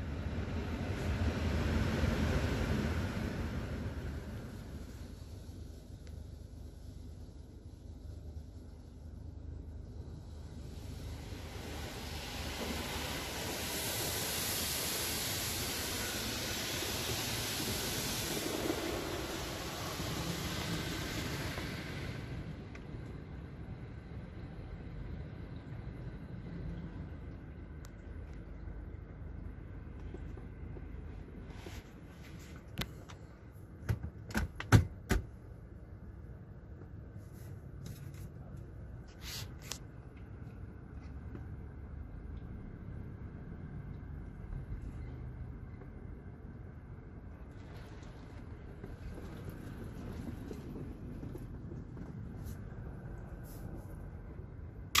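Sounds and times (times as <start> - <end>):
water spray hissing on car: 1.1 - 9.0, 9.9 - 22.6.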